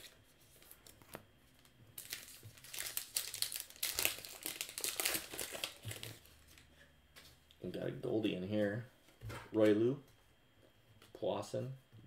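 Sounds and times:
wrapper crinkling: 0:01.6 - 0:06.6.

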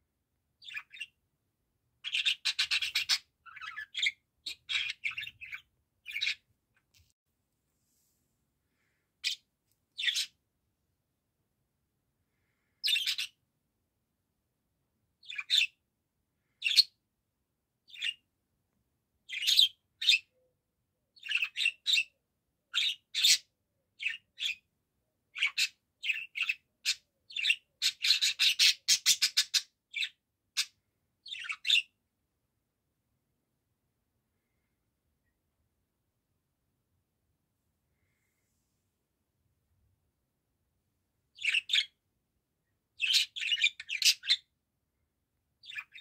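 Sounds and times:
budgerigar chirping: 0:00.6 - 0:01.2, 0:02.0 - 0:06.4, 0:10.0 - 0:10.4, 0:12.8 - 0:13.4, 0:15.2 - 0:15.8, 0:19.3 - 0:20.3, 0:21.2 - 0:22.1, 0:22.7 - 0:24.6, 0:25.4 - 0:31.9, 0:41.4 - 0:42.0, 0:43.0 - 0:44.5, 0:45.6 - 0:46.0.

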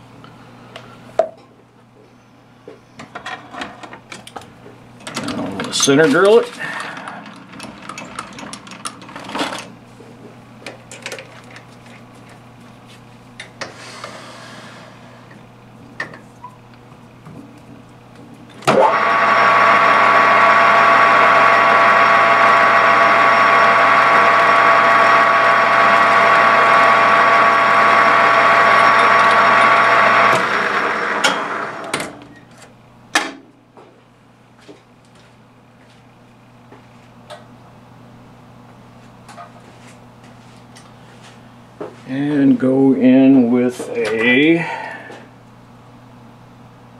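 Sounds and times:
drill cutting into spinning rod: 0:18.7 - 0:32.0
metal lathe humming: 0:18.7 - 0:32.0.

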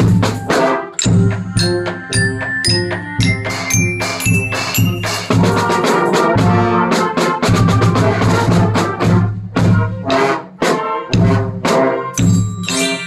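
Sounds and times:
bells ringing notes: 0:01.0 - 0:06.0, 0:12.2 - 0:13.0.

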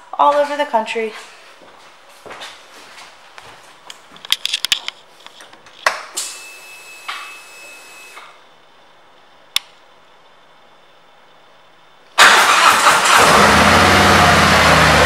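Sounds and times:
fuel pump whine: 0:06.0 - 0:08.4, 0:12.2 - 0:15.0.

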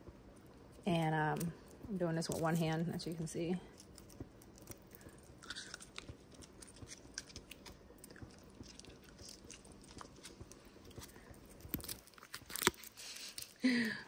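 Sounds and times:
broth simmering with bubbles popping: 0:03.2 - 0:12.1.

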